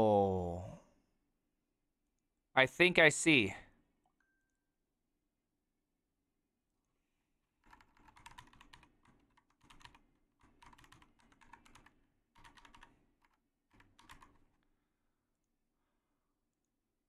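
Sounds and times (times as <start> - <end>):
faint computer keyboard typing: 7.6 - 14.7.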